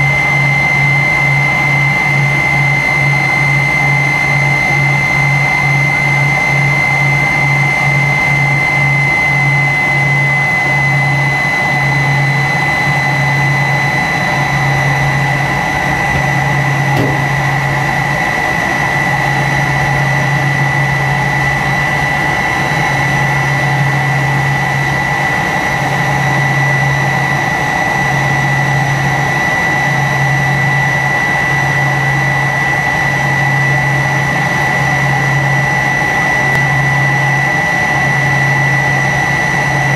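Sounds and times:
jet engine whine and rumble: 0:00.0 - 0:39.9
throbbing low hum: 0:15.8 - 0:18.1.

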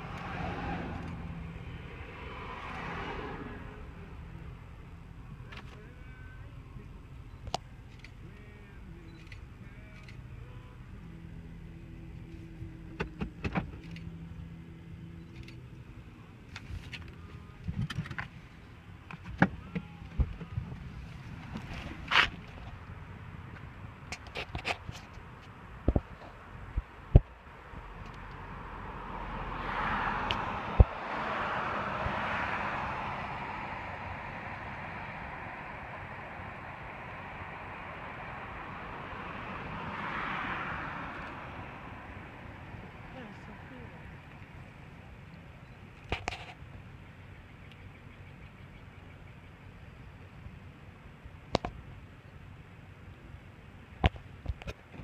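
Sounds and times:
car driving past: 0:00.0 - 0:04.8, 0:27.8 - 0:44.4
steady hum inside car: 0:00.0 - 0:24.2, 0:41.0 - 0:55.0.

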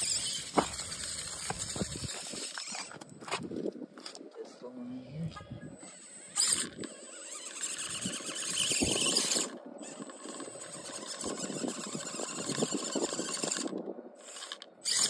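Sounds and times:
electric motor whining: 0:00.0 - 0:03.1, 0:05.3 - 0:15.0
tyres scrabbling on rock: 0:00.0 - 0:04.2.

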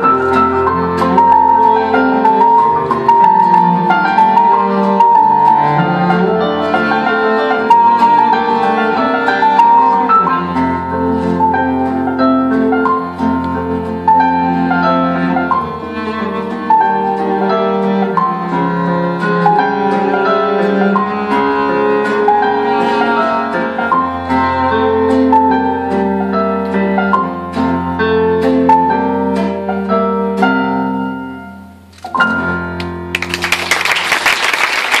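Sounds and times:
piano cello and guitar trio: 0:00.0 - 0:35.0
audience applause: 0:33.1 - 0:35.0.

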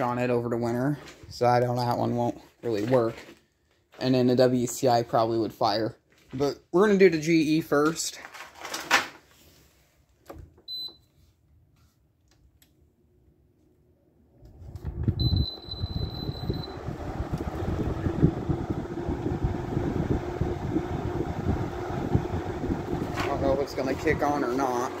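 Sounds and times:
air conditioner fan humming: 0:14.6 - 0:25.0.

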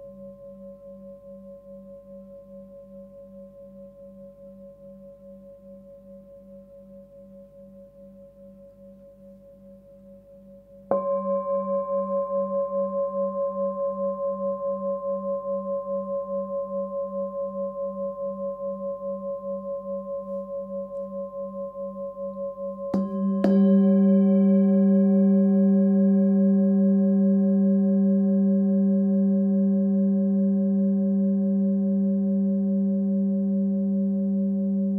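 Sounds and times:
singing bowl ringing: 0:00.0 - 0:34.9
singing bowl struck: 0:10.9 - 0:30.2.

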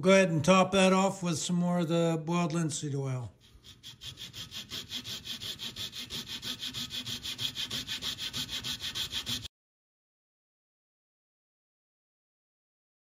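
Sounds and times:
saw cutting wood: 0:03.4 - 0:09.5.

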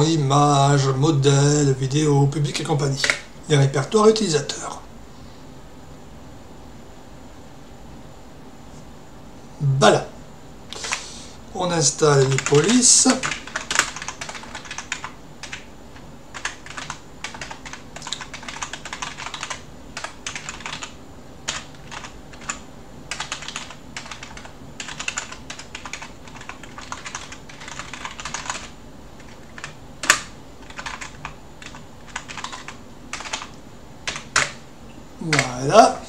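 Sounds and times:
typing on computer keyboard: 0:12.2 - 0:15.7, 0:16.3 - 0:34.6.

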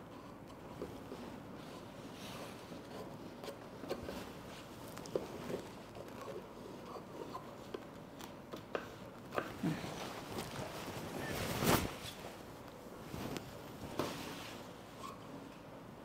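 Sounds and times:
fabric rustling: 0:09.0 - 0:15.2.

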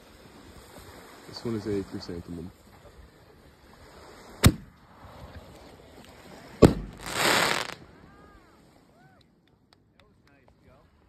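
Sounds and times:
firework launch thump: 0:04.4 - 0:04.8, 0:06.6 - 0:07.8
firework bang: 0:06.6 - 0:07.8.

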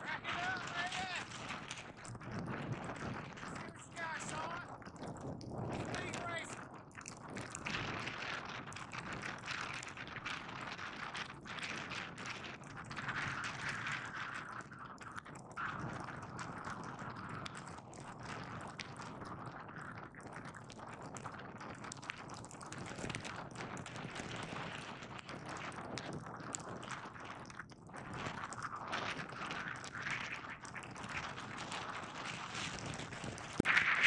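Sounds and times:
skis sliding on snow: 0:00.0 - 0:01.8, 0:03.6 - 0:04.6
ski scrapes and clicks: 0:00.2 - 0:01.8.

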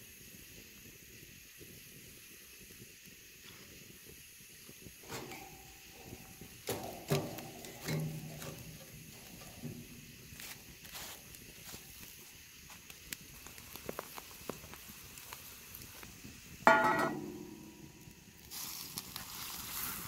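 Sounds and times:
metal tongs clanking on grill grate: 0:05.0 - 0:11.0, 0:16.7 - 0:18.6.

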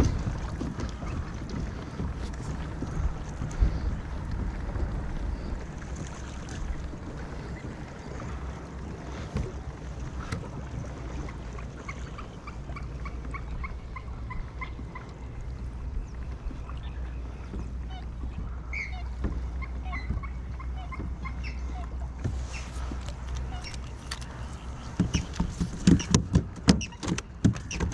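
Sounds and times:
wind on microphone: 0:00.0 - 0:11.3
waterbirds calling: 0:00.0 - 0:27.9.

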